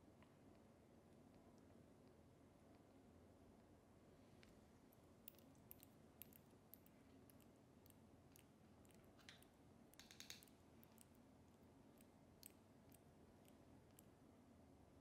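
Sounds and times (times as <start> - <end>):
kitten suckling wet clicks: 5.3 - 14.1.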